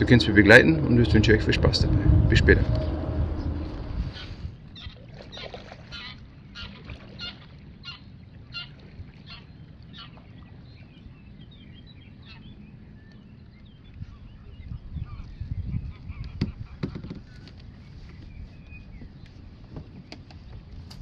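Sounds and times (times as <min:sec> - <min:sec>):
waterfowl honking: 0:00.0 - 0:10.2
wind rumble on microphone: 0:00.0 - 0:21.0.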